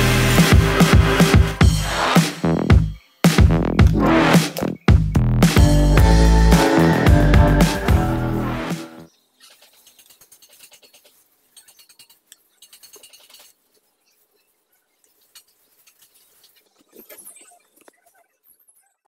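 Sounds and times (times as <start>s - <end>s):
background music: 0.0s - 9.1s.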